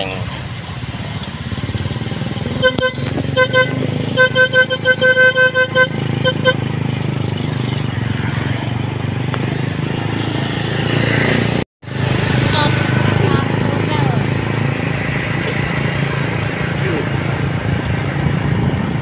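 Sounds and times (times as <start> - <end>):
vehicle engine hum: 0.0 - 19.0
vehicle horn short toots: 2.6 - 6.7.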